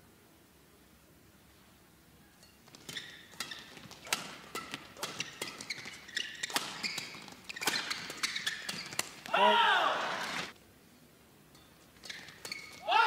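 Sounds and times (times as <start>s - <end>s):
rackets hitting shuttlecock: 2.4s - 9.4s, 11.6s - 13.0s
court shoes squeaking: 2.4s - 10.6s, 11.6s - 13.0s.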